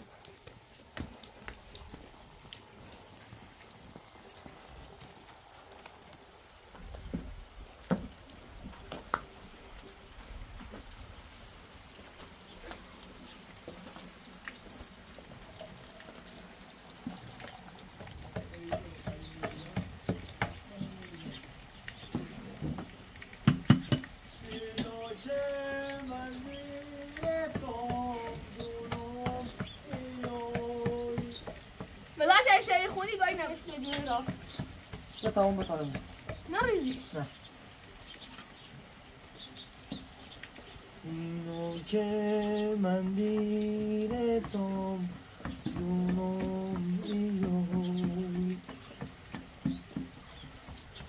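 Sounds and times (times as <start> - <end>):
faint rain patter: 0.0 - 51.0
person singing: 24.4 - 31.4, 41.0 - 48.7.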